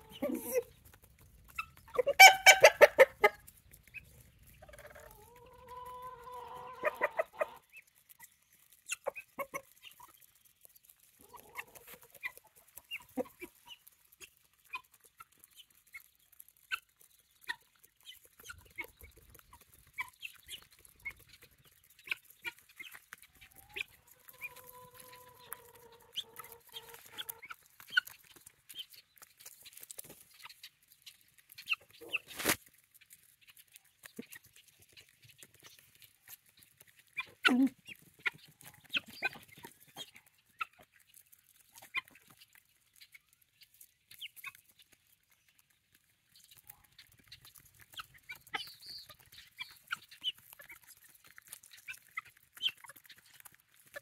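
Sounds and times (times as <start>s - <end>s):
chicken squawk: 0.0s - 0.7s, 1.9s - 3.4s, 4.6s - 7.6s
beaks pecking hard ground: 0.0s - 54.0s
chickens clucking: 0.0s - 54.0s
long even-pitched chicken calls: 1.6s - 3.4s, 4.6s - 7.7s, 23.4s - 28.0s.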